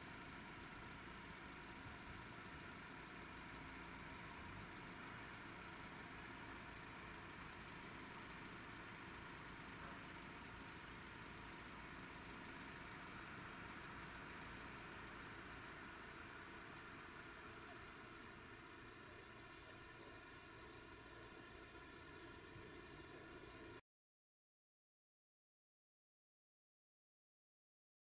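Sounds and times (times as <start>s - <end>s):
distant engine noise: 4.6s - 23.8s.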